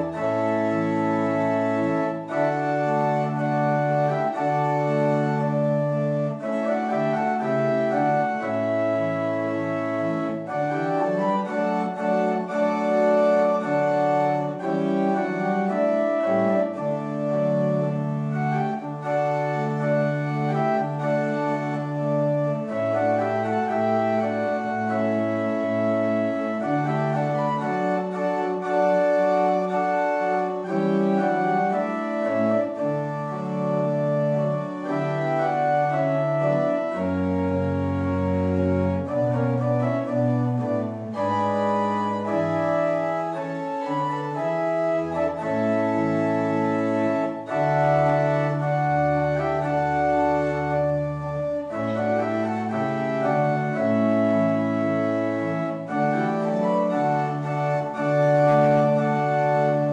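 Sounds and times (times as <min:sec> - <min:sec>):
organ playing slow chords: 0:00.0 - 0:59.9.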